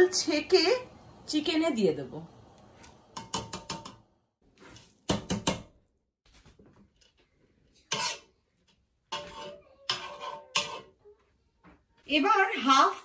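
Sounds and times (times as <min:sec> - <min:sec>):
metal spoon scraping strainer: 0:07.7 - 0:08.4, 0:09.1 - 0:11.0.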